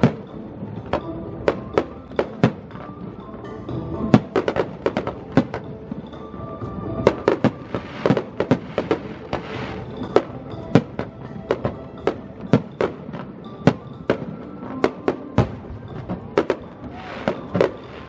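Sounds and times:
music: 0.0 - 18.0
fireworks bursting: 4.1 - 18.0
fireworks hiss: 7.6 - 10.0.

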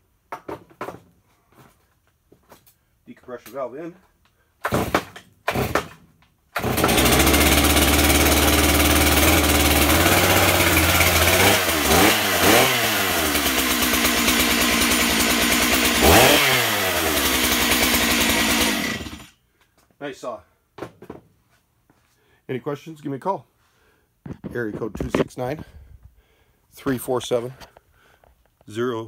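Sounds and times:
chainsaw idling and revving: 4.8 - 5.9, 6.6 - 19.4.

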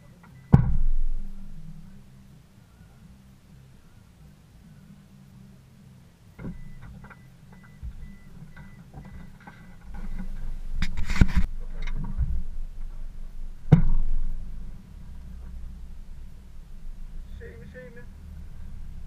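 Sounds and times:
clunks: 0.0 - 1.8, 6.4 - 15.7
low rumble: 0.0 - 19.0.

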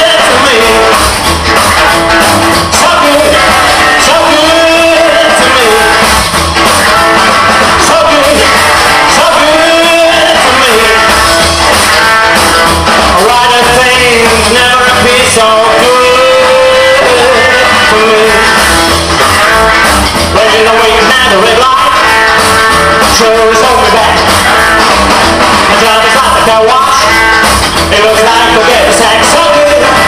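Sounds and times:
man singing: 0.0 - 1.2, 2.7 - 6.2, 7.7 - 11.2, 13.0 - 18.6, 20.2 - 24.6, 25.6 - 30.0
live rock and roll band: 0.0 - 30.0.

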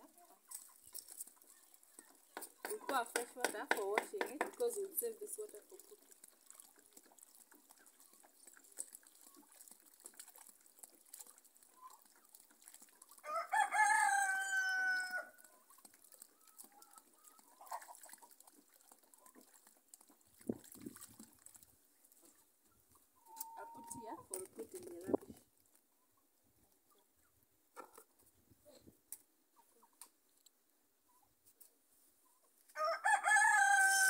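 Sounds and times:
hands washing in water basin: 0.4 - 13.3, 15.4 - 22.6
rooster crowing: 13.2 - 15.3, 32.8 - 34.0.

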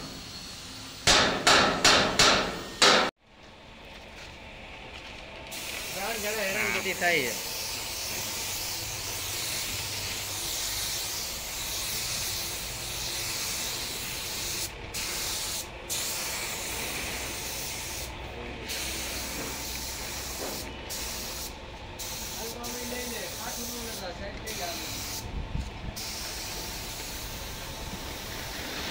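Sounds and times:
spray gun hissing: 5.5 - 25.3, 25.9 - 28.8.

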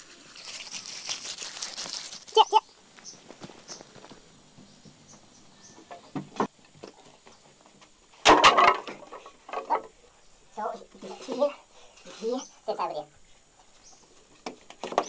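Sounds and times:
wooden sticks clattering on dirt: 2.3 - 10.0, 13.6 - 15.0.

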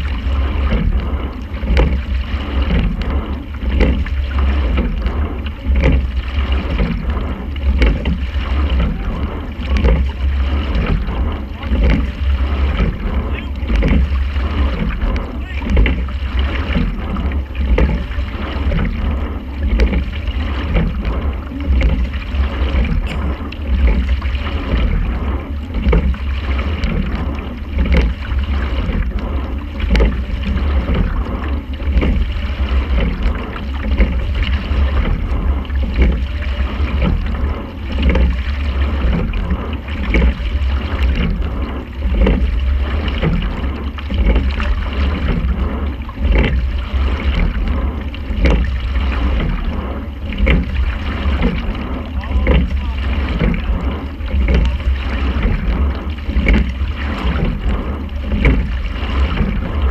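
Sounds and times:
oar stroke knocks: 0.0 - 59.9
steady low rumble: 0.0 - 59.9
water running along hull: 0.0 - 59.9.

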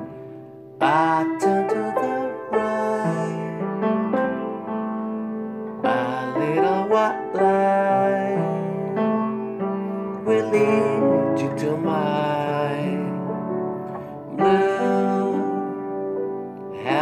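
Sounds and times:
piano chords: 0.0 - 17.0
man singing: 0.8 - 4.6, 5.8 - 16.0, 16.7 - 17.0.

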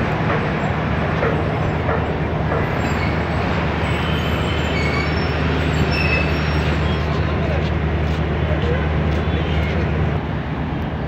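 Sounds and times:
train wheels rolling on rails: 0.0 - 11.0
high wheel squeals: 2.6 - 7.4.

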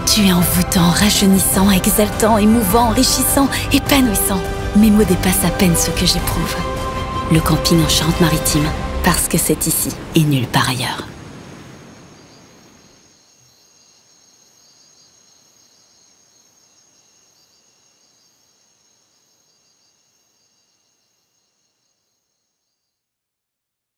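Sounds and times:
crickets chirring: 9.4 - 23.2.

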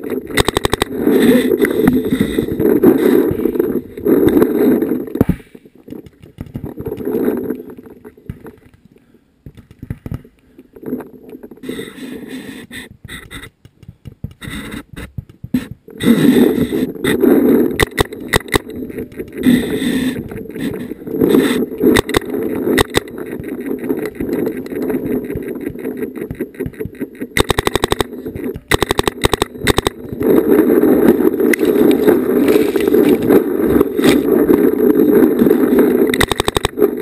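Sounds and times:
steady rushing noise: 11.5 - 37.0
paintball markers firing: 17.8 - 19.3, 25.3 - 30.3, 36.2 - 36.8.

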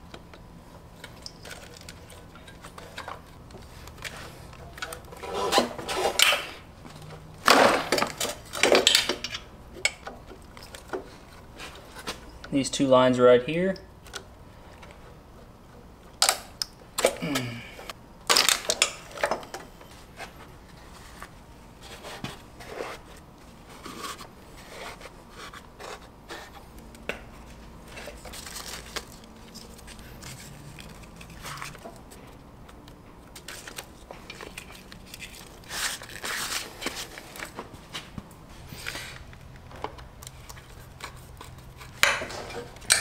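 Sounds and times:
rustling and crinkling: 18.4 - 42.9.

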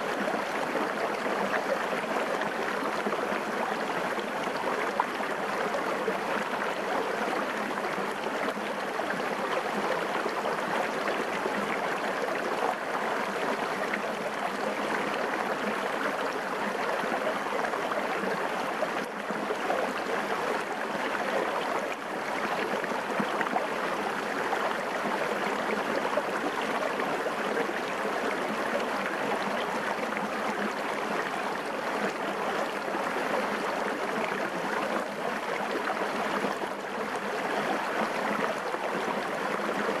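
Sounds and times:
stream burbling over rocks: 0.0 - 40.0.

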